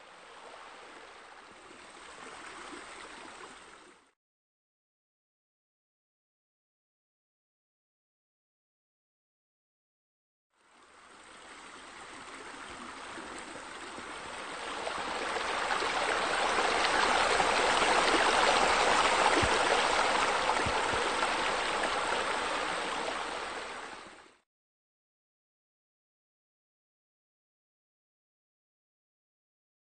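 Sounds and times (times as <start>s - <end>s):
waterfall splashing into pool: 15.0s - 23.5s.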